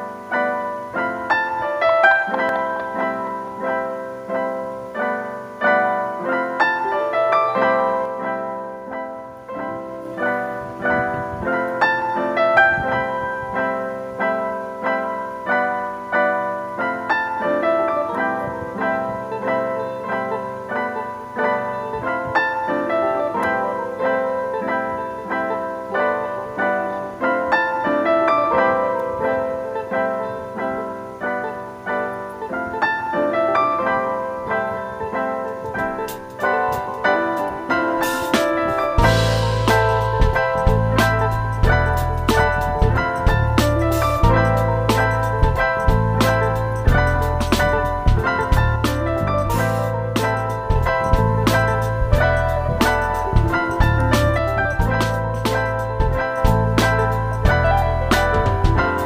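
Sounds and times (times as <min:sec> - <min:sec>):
piano notes: 0:00.0 - 0:59.0.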